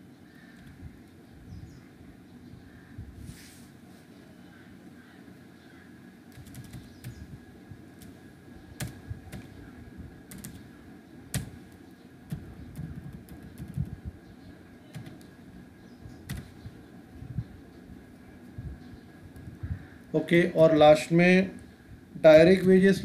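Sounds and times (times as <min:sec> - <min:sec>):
keyboard key clicks: 0:11.3 - 0:11.6, 0:16.3 - 0:16.5.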